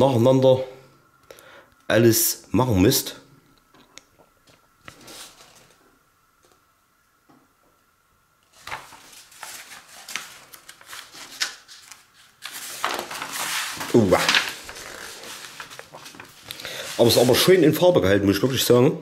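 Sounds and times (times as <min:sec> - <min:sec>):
paper sheets rustling and crinkling: 0:04.5 - 0:05.8, 0:08.5 - 0:17.8.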